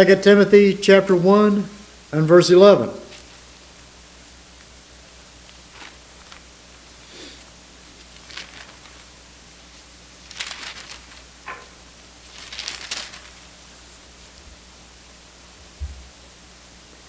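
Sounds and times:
low room hum: 0:00.0 - 0:17.0
pages rustling: 0:05.4 - 0:13.6.

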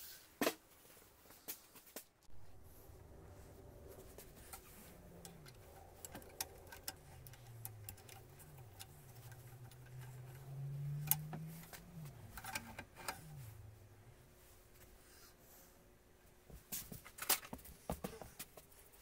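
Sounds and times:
faint low hum: 0:02.2 - 0:19.0
small metal clicks and taps: 0:05.2 - 0:13.2.

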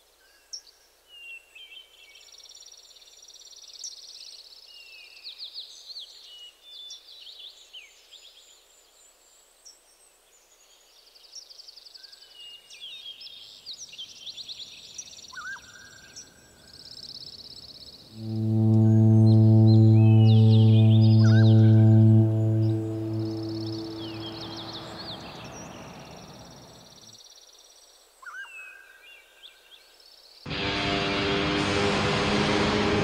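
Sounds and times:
high gliding bird calls: 0:18.2 - 0:25.9.

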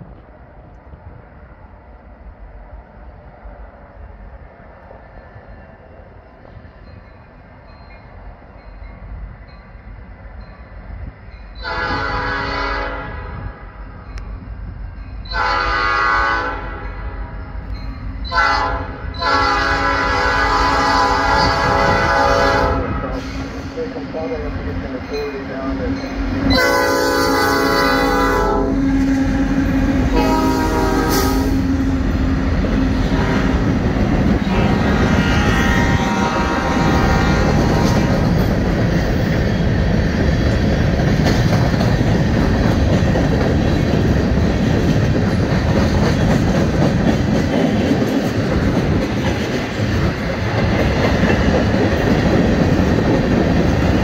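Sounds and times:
diesel locomotives passing: 0:00.0 - 0:54.0
train horn blasts: 0:11.6 - 0:13.6, 0:15.3 - 0:17.1, 0:18.3 - 0:23.5, 0:26.4 - 0:31.9, 0:33.0 - 0:33.8, 0:34.4 - 0:38.0
train wheels clattering on rails: 0:36.7 - 0:54.0.

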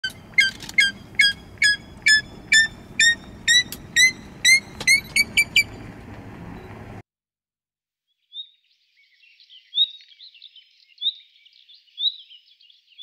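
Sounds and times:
bird whistled calls: 0:00.0 - 0:05.8.

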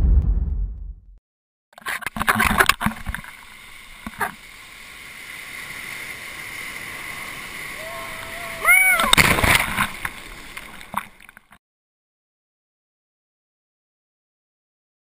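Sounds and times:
deep boom: 0:00.0 - 0:01.2.

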